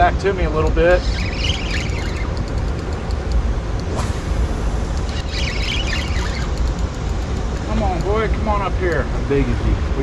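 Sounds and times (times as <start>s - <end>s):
sharp click: 0.6s - 4.2s, 4.9s - 9.1s
faint high chirping: 1.0s - 3.4s, 5.0s - 8.1s.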